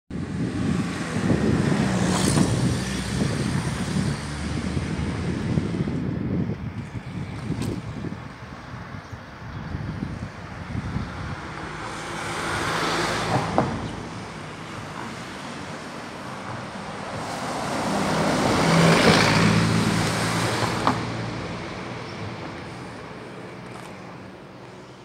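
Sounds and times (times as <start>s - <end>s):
wind buffeting microphone: 0.1s - 24.5s
vehicles passing by: 0.1s - 25.0s.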